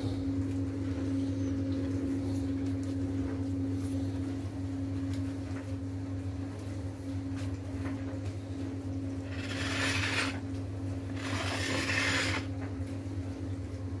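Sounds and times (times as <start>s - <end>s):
plate scraping on glass hob: 9.2s - 10.4s, 11.1s - 12.5s.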